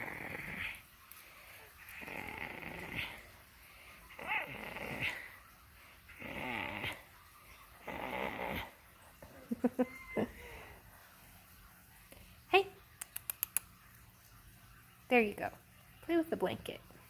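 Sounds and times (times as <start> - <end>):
puppy breathy grunts: 4.0 - 5.4, 6.1 - 7.1.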